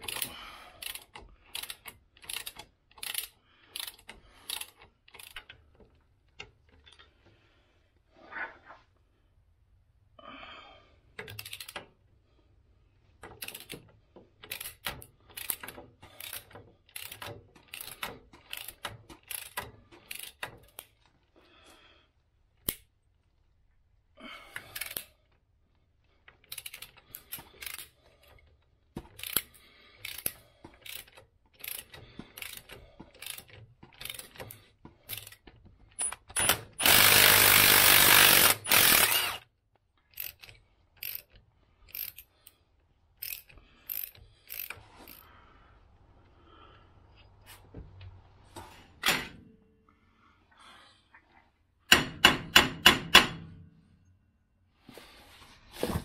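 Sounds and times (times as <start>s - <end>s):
ratchet clicking: 0.0s - 5.6s, 11.2s - 11.8s, 13.2s - 13.8s, 14.4s - 20.9s, 26.4s - 28.0s, 29.2s - 39.4s, 40.1s - 42.3s, 43.2s - 45.3s.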